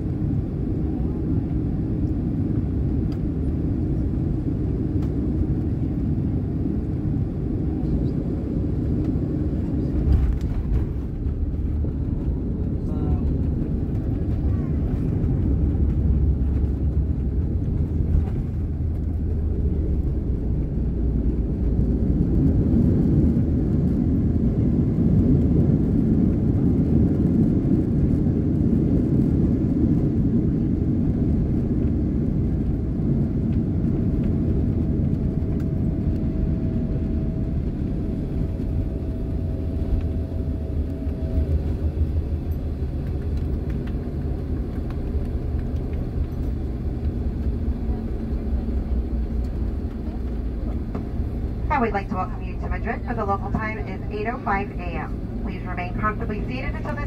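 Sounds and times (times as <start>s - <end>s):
jet engines and wheels rumbling: 0.0s - 57.0s
faint steady whine: 34.5s - 57.0s.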